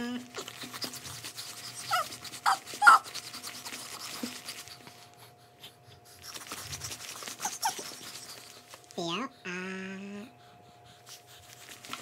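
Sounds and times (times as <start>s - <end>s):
baby panting rapidly: 0.4s - 8.8s, 10.4s - 12.0s
baby squealing: 1.8s - 3.1s.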